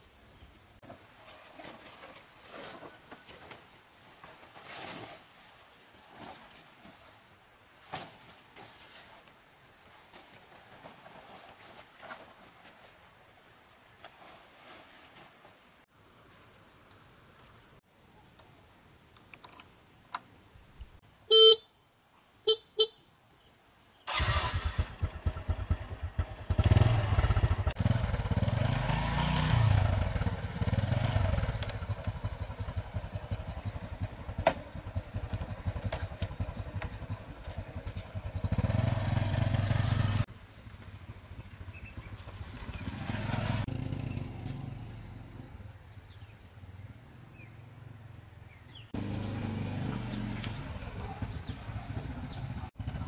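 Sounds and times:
small engine running: 24.1s - 45.2s.

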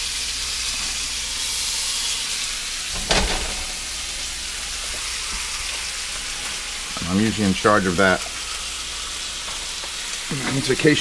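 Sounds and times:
bacon sizzling in a frying pan: 0.0s - 11.0s
loud thump: 3.0s - 3.9s.

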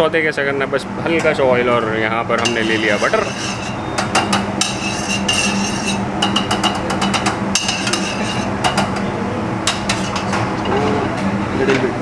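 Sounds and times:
ladle clinking and scraping pan: 2.4s - 8.9s, 9.7s - 10.4s.

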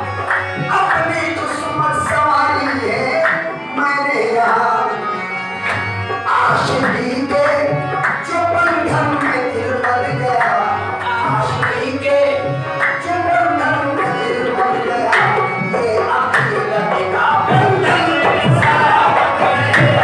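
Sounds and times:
tabla drumming: 0.0s - 20.0s.

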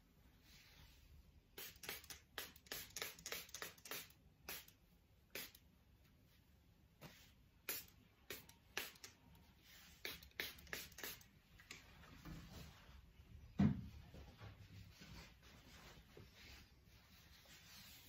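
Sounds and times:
spray bottle hissing: 1.6s - 5.6s, 7.7s - 9.2s, 10.0s - 11.3s.

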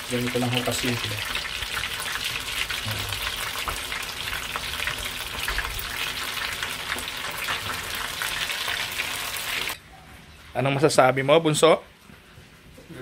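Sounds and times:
squid rings deep-frying in oil: 0.0s - 9.8s.

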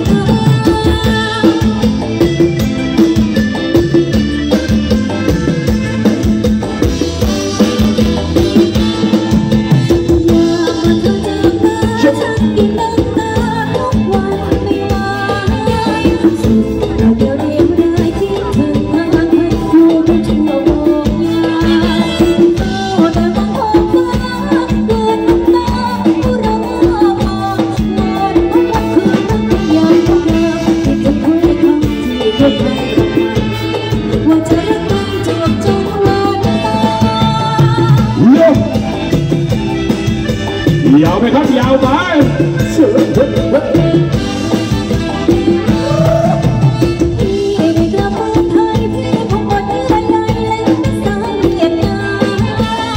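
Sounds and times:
woman singing: 0.0s - 2.6s, 8.4s - 38.7s, 45.0s - 52.9s
live band dance music: 0.0s - 52.9s
steady drum beat: 0.0s - 52.9s.

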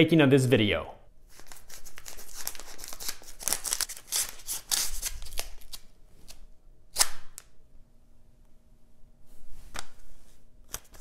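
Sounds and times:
knife slitting envelope paper: 1.4s - 5.8s.

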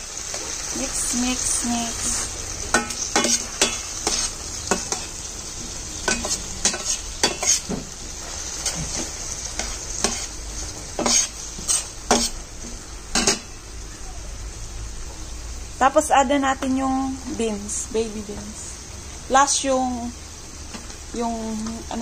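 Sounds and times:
frying oil sizzling: 0.0s - 22.0s
metal spoon scraping a frying pan: 2.7s - 5.1s, 6.0s - 7.7s, 8.4s - 10.4s, 11.0s - 12.4s, 13.1s - 13.5s.

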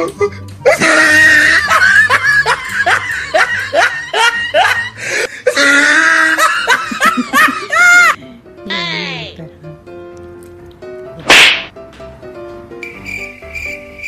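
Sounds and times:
faint background music: 0.0s - 14.0s
person laughing: 0.6s - 8.2s.

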